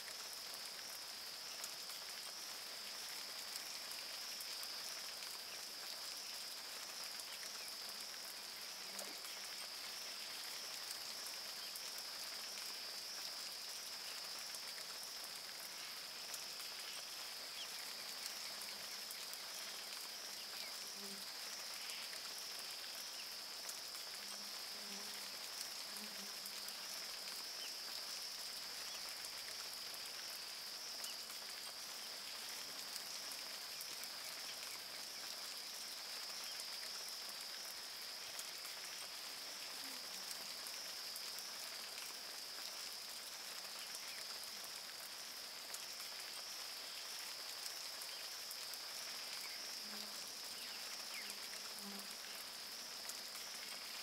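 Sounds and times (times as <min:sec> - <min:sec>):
rain falling on river: 0:00.0 - 0:54.0.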